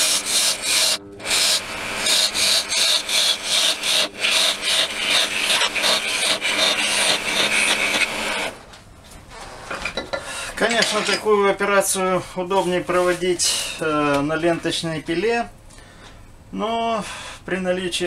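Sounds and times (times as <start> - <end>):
lathe tool scraping wood: 0.0 - 8.6
wood lathe humming: 0.0 - 8.6.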